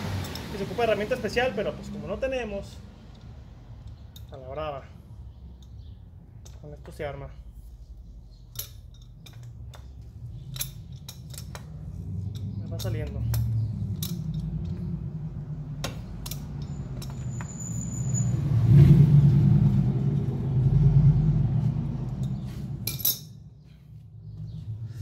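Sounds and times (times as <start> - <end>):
low steady rumble: 0.0 - 25.0
wrench clinking on metal: 8.4 - 14.8, 15.8 - 18.3, 22.2 - 23.4.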